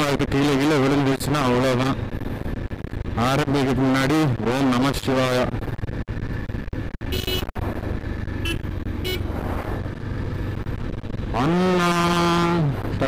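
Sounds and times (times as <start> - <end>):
motorcycle engine and wind rumble: 0.0 - 13.0
horn beeps: 7.0 - 7.5, 8.4 - 9.3.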